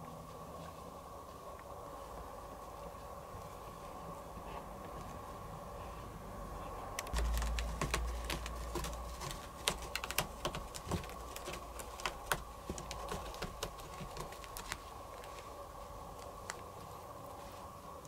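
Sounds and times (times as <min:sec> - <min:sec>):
kitten claws scratching carpet: 0:07.0 - 0:17.7
low rumble: 0:07.1 - 0:09.6.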